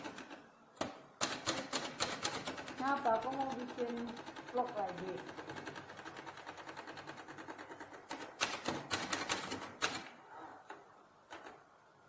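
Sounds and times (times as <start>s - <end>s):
typewriter keys clacking: 1.2s - 10.1s.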